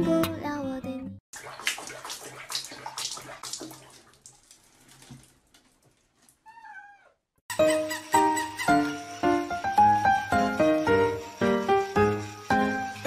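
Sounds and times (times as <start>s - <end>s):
water splashing in a basin: 1.3s - 6.5s
cat meowing: 6.4s - 7.2s.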